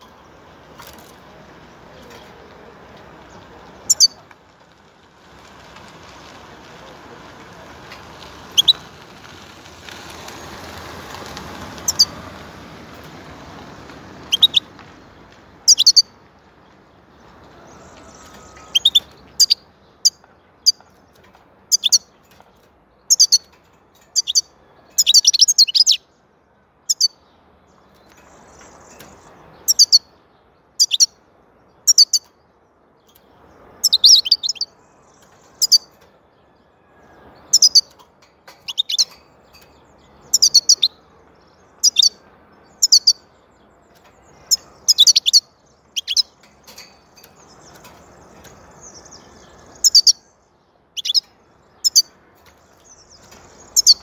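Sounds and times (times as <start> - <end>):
bird twittering song: 3.2 - 4.3, 8.4 - 9.1, 11.8 - 12.2, 14.2 - 14.8, 15.6 - 54.0.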